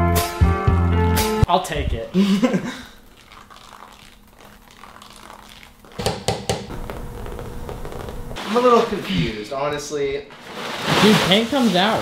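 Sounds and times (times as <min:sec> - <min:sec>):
rustling: 0:10.3 - 0:12.0.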